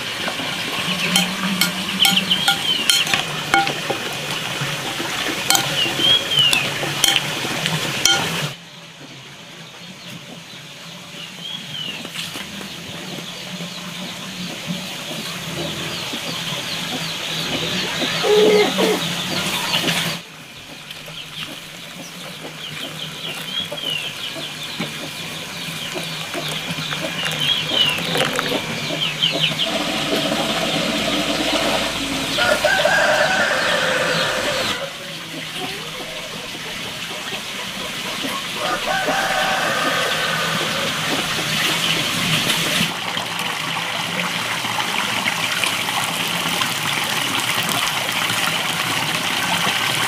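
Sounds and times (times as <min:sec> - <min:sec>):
chickens clucking and calling: 0:00.2 - 0:08.6, 0:12.5 - 0:42.9.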